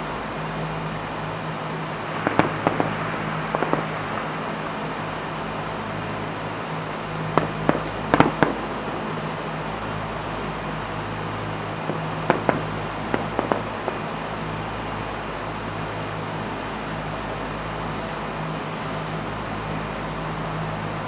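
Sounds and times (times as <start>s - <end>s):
low hum and hiss: 0.0s - 21.0s
fireworks bangs: 1.9s - 6.4s, 7.2s - 10.0s, 11.8s - 14.6s.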